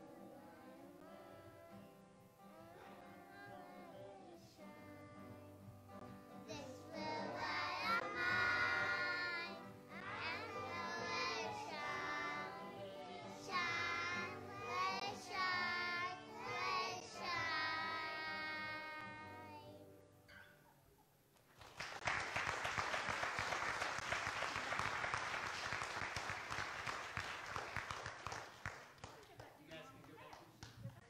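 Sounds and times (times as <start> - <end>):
guitar: 0.0 - 21.0
children singing: 2.5 - 5.6, 6.5 - 19.9.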